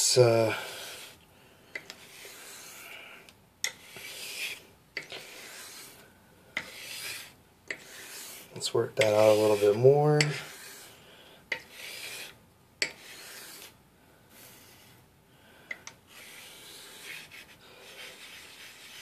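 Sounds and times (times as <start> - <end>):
blade scraping on whetstone: 1.8 - 3.0, 3.6 - 6.0, 6.6 - 13.8, 16.1 - 19.0.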